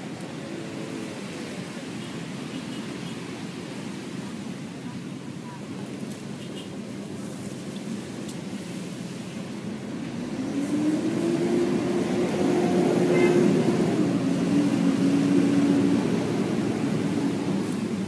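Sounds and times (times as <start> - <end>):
engine passing by: 9.6 - 18.0.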